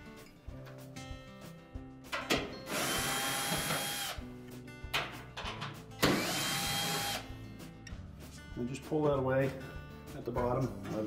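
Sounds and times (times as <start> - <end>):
quiet guitar music: 0.0 - 2.7, 4.2 - 6.0, 7.2 - 11.0
cordless drill motor whine: 2.7 - 4.2, 6.2 - 7.2.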